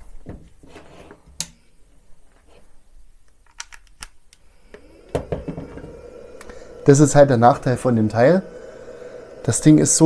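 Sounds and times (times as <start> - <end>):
cooling fan humming: 4.5 - 10.0.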